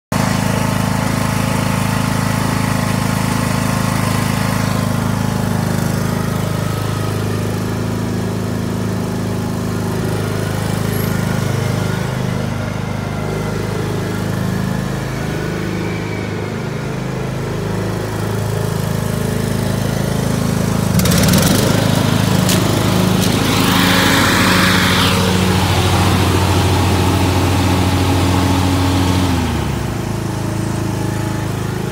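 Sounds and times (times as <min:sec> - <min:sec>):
ride-on lawnmower engine running: 0:00.1 - 0:31.9
loud rushing noise: 0:20.9 - 0:28.2.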